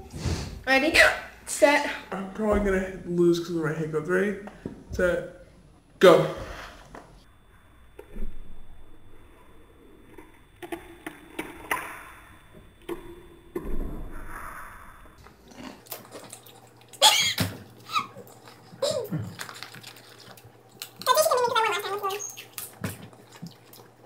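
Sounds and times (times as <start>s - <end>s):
chips crunching: 17.7s - 24.0s
girl's voice: 21.0s - 22.3s.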